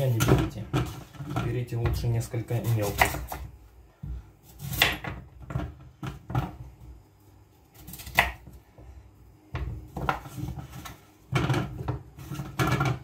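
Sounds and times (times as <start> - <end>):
knife cutting carrot on board: 2.5 - 3.5, 4.4 - 5.2, 7.8 - 8.6.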